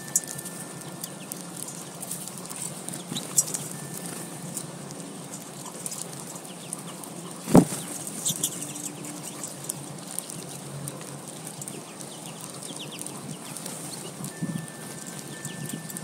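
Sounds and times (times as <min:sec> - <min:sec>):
seed pecking clicks: 0:00.0 - 0:16.0
bird landing thump: 0:07.5 - 0:07.8.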